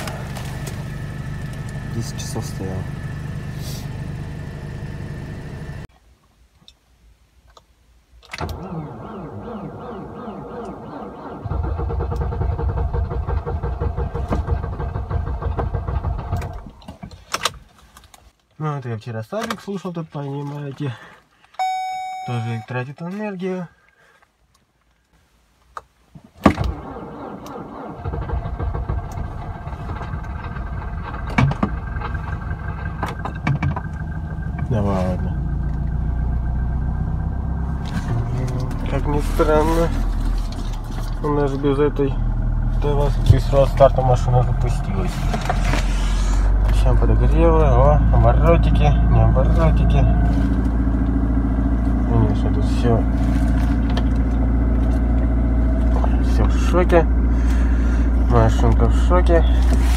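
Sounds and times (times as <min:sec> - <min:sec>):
car engine running: 0:00.0 - 0:05.9, 0:28.0 - 0:59.9
car engine starting: 0:00.0 - 0:05.9, 0:08.2 - 0:17.6, 0:26.4 - 0:59.9
car starter cranking: 0:08.2 - 0:17.6, 0:26.4 - 0:37.0
car engine fast idle: 0:26.8 - 0:37.0, 0:50.2 - 0:58.5.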